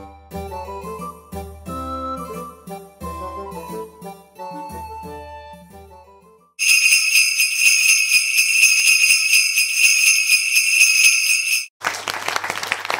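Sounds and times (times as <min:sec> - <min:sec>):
small bells jingling: 0:06.6 - 0:11.7.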